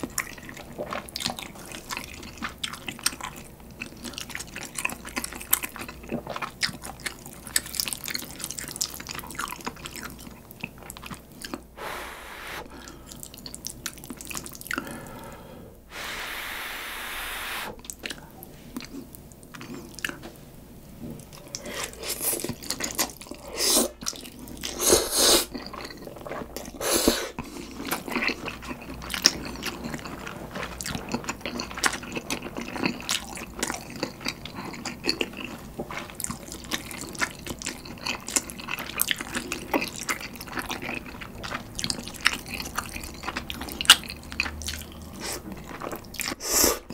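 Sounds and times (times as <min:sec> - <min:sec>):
noodle slurps: 0:15.9 - 0:17.8
wet chewing and lip smacks: 0:27.4 - 0:46.9.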